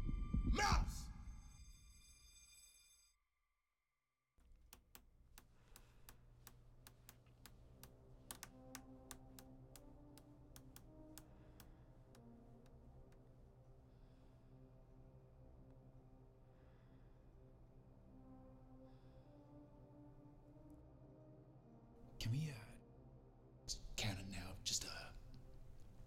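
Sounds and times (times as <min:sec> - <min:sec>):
faint irregular clicking: 0:04.4 - 0:13.4.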